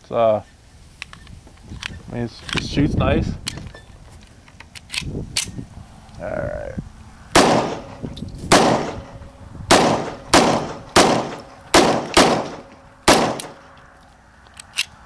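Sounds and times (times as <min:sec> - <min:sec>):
pistol shots with echo: 0:07.4 - 0:13.7.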